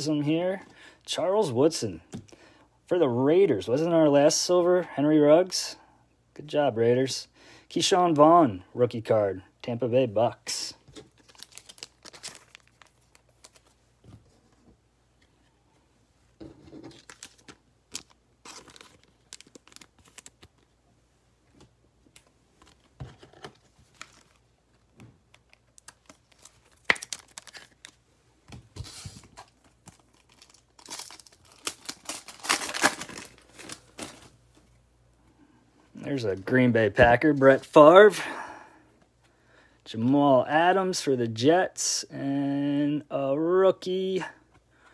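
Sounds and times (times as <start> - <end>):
foil wrapper crinkling: 11.1 - 13.8, 16.8 - 20.7, 25.3 - 28.0, 28.8 - 34.3
foil pack tearing: 30.1 - 34.2.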